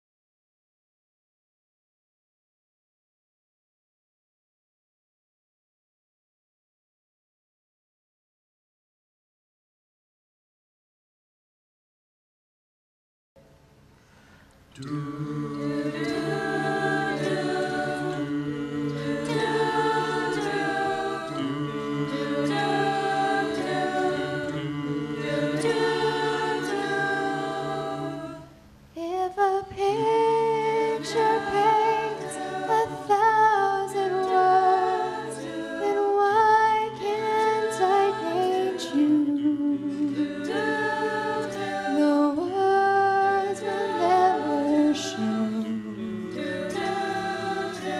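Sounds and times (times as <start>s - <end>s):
mixed choir singing a cappella: 14.8s - 47.9s.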